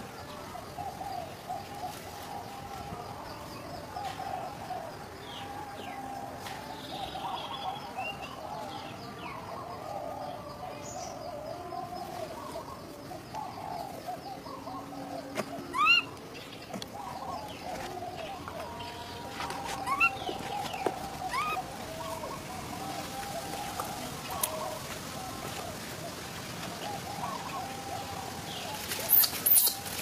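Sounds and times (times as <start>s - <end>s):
wavering animal chatter: 17.0s - 24.4s.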